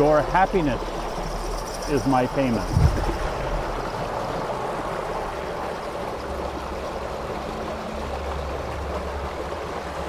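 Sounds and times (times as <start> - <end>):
steady rushing noise: 0.0 - 10.0
low rumble: 2.5 - 4.5.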